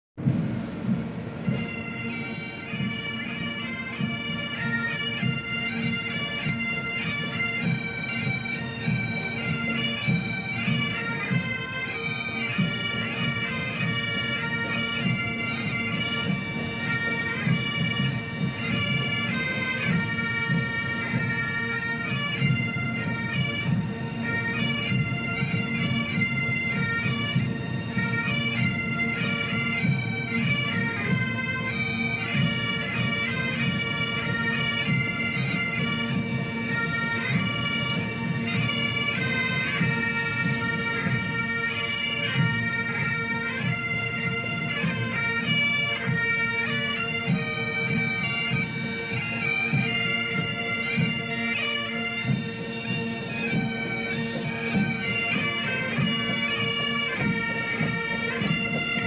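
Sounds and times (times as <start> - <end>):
bagpipes playing a tune: 0.9 - 59.0.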